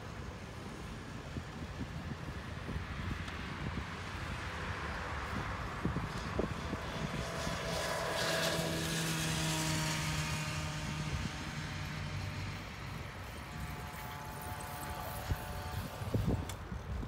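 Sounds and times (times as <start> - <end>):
bicycle riding on asphalt: 0.0 - 17.0
wind on microphone: 0.6 - 17.0
passing motor hum: 3.6 - 17.0.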